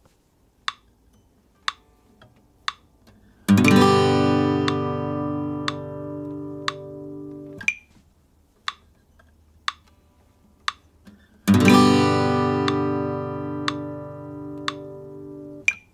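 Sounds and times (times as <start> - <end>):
click track ticking: 0.6 - 0.9, 1.6 - 1.9, 2.6 - 7.9, 8.6 - 9.0, 9.6 - 10.0, 10.6 - 15.9
acoustic guitar chord strummed: 3.5 - 7.7, 11.5 - 15.8.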